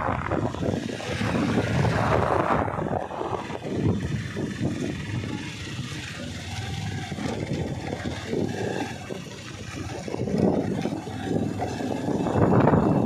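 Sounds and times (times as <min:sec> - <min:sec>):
motorcycle engine running: 0:00.0 - 0:13.0
wind rumbling on microphone: 0:00.0 - 0:13.0.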